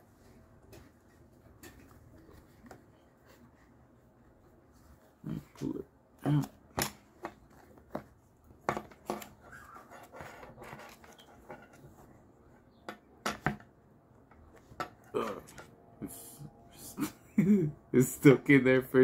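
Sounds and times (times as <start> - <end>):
leather sheath rubbing and scraping: 9.4 - 11.8.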